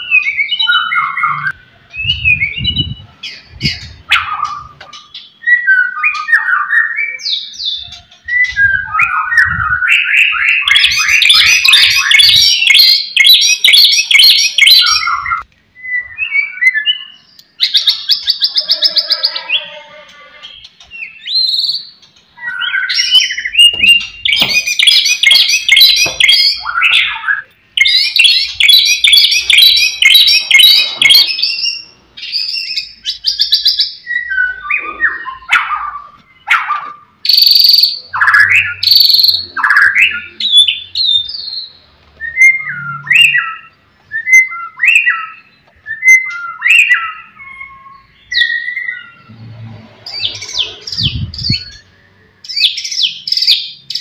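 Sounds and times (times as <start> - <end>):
bird singing whistles and rattles: 20.5 - 34.7, 37.3 - 41.6.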